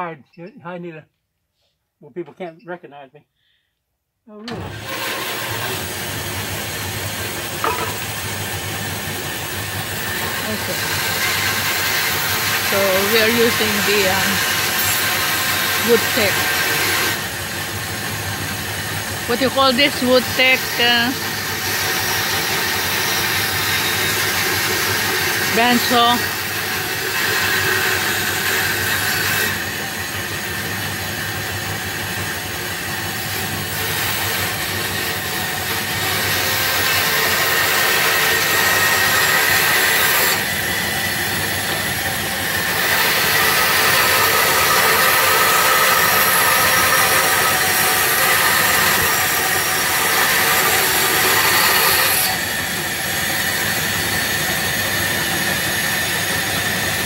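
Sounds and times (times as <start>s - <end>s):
bandsaw cutting wood: 4.5s - 57.0s.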